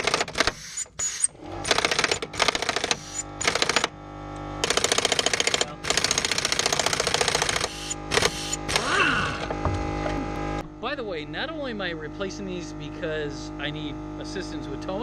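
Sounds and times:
impact wrench hammering: 0:00.0 - 0:04.0, 0:04.6 - 0:09.8
steady hum: 0:00.4 - 0:15.0.

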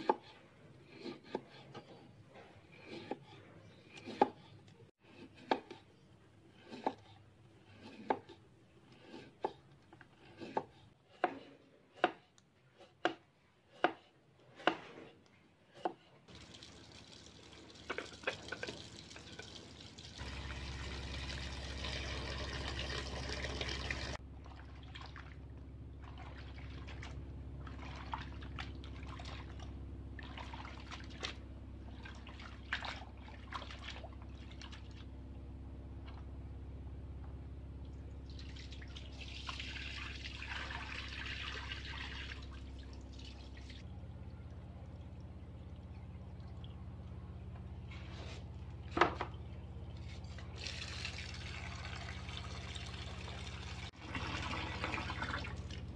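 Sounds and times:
knife chopping on wooden board: 0:03.8 - 0:04.5, 0:05.1 - 0:05.8, 0:10.2 - 0:15.1
water running from hose into bucket: 0:16.3 - 0:24.2, 0:38.3 - 0:43.8, 0:50.2 - 0:55.9.

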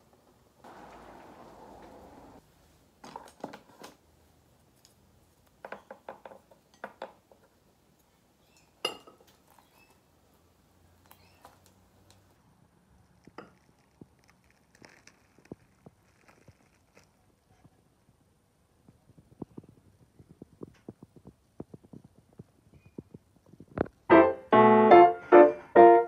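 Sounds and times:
steady hiss: 0:00.0 - 0:02.8
pot and bowl clinking: 0:08.8 - 0:09.3.

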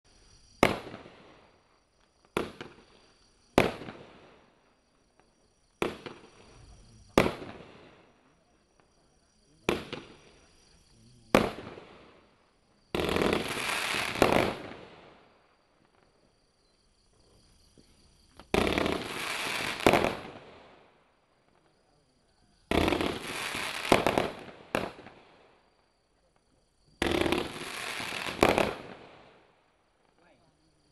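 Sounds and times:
fireworks bangs: 0:00.6 - 0:10.6, 0:11.2 - 0:16.3, 0:18.3 - 0:21.7, 0:22.6 - 0:25.7, 0:27.0 - 0:29.6
firework launch thump and hiss: 0:02.3 - 0:02.9, 0:09.6 - 0:10.2, 0:17.8 - 0:20.4, 0:27.0 - 0:29.0.

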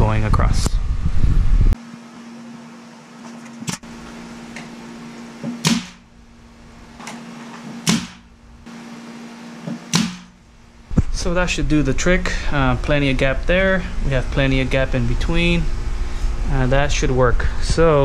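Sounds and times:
steady low hum: 0:00.0 - 0:18.0
nail gun shots: 0:05.6 - 0:06.1, 0:07.8 - 0:08.3, 0:09.9 - 0:10.4.

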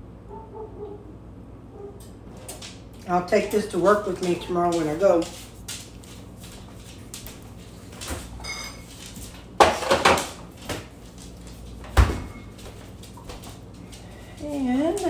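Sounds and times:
kitchen items clattering: 0:08.0 - 0:10.8.

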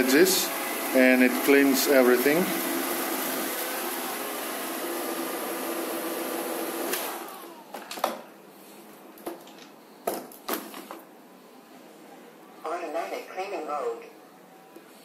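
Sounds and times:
robot vacuum running: 0:00.0 - 0:07.6.

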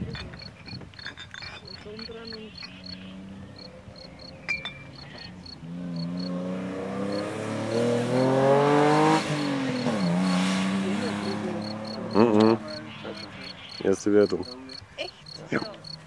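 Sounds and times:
race car accelerating past: 0:02.8 - 0:13.8.

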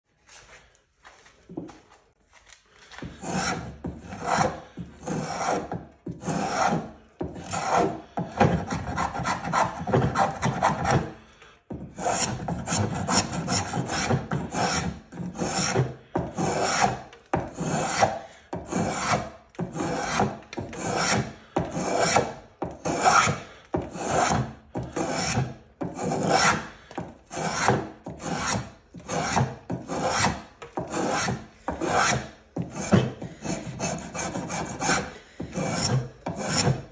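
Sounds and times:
spokeshave rasping on wood: 0:03.0 - 0:36.9.

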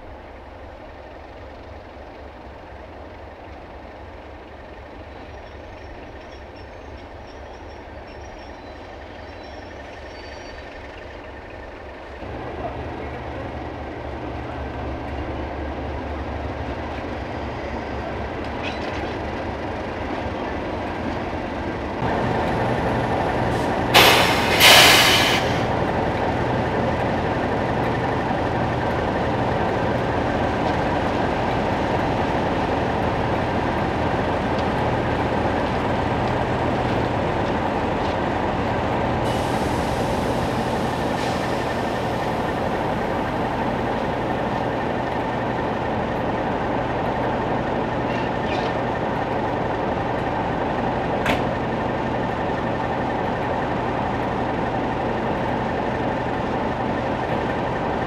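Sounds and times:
diesel locomotive engine running: 0:00.0 - 0:58.0
loud hisses: 0:23.5 - 0:25.7, 0:39.2 - 0:42.8.

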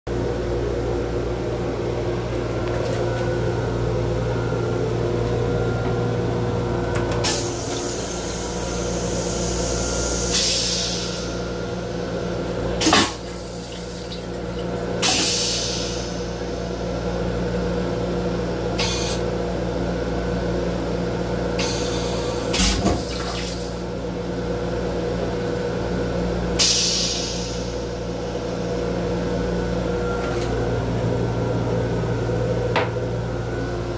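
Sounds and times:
railcar low hum: 0:00.1 - 0:33.9.

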